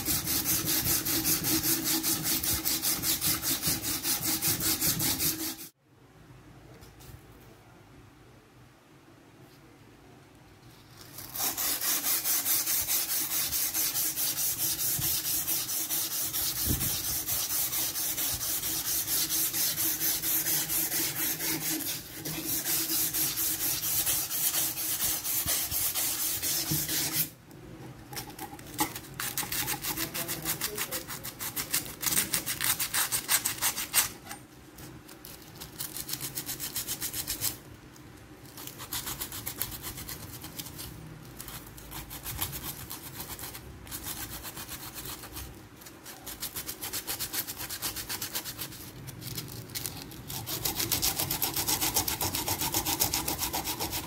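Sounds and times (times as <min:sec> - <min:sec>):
sandpaper rubbing on metal: 0:00.0 - 0:05.7, 0:11.2 - 0:27.3, 0:29.2 - 0:34.2, 0:38.6 - 0:54.0.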